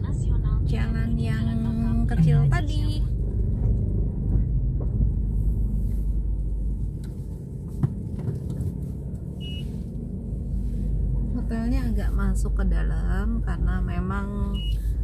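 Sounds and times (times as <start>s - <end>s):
car engine and road rumble: 0.0s - 15.0s
short high beep: 9.4s - 9.7s, 14.5s - 14.8s.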